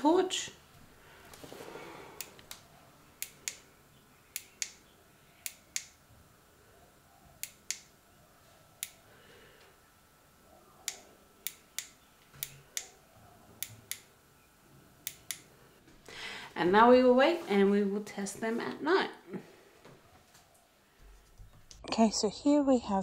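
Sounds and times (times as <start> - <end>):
torch button clicking: 2.2 - 3.6, 4.3 - 6.0, 7.4 - 7.9, 10.8 - 13.0, 13.6 - 14.1, 15.0 - 15.5.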